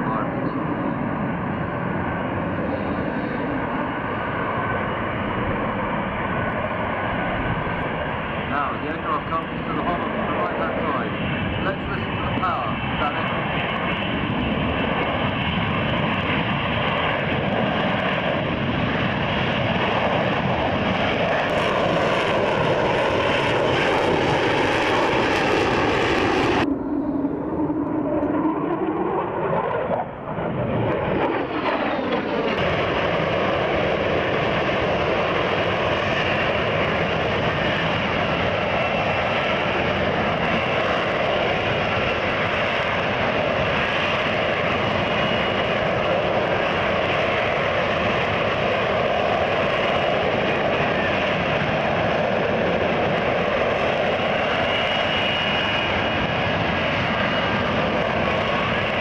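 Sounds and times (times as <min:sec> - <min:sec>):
jet engine roaring with whine: 0:00.0 - 0:59.0.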